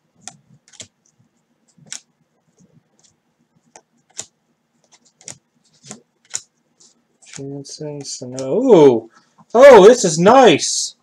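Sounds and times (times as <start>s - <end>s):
cards flicking and clicking: 0.2s - 1.1s, 1.8s - 2.1s, 3.0s - 8.7s.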